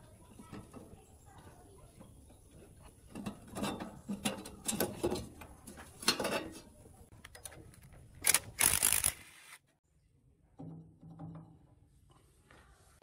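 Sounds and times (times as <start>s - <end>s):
metal clanking and rattling: 0.0s - 6.8s.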